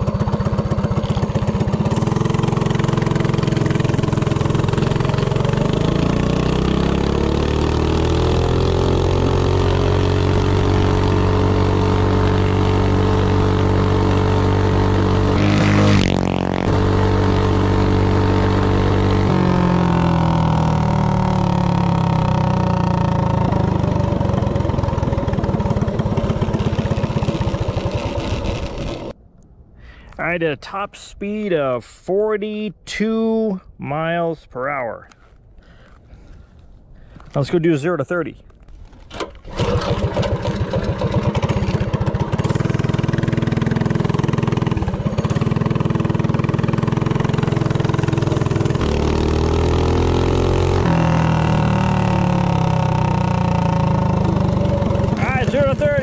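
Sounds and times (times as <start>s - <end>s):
small engine revving: 0.0s - 29.2s, 39.2s - 56.0s.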